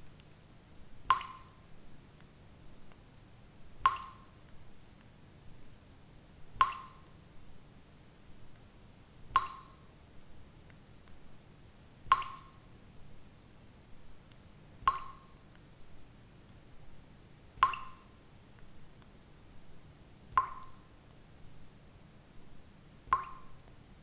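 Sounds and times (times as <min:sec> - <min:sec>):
faint small ticks: 0:00.1 - 0:00.4, 0:01.1 - 0:03.1, 0:03.8 - 0:05.2, 0:20.3 - 0:21.3
water droplets dripping: 0:01.0 - 0:03.0, 0:03.8 - 0:05.1, 0:06.6 - 0:07.2, 0:09.3 - 0:11.2, 0:12.0 - 0:12.7, 0:14.2 - 0:15.7, 0:17.6 - 0:19.2, 0:20.3 - 0:21.2, 0:23.0 - 0:23.8.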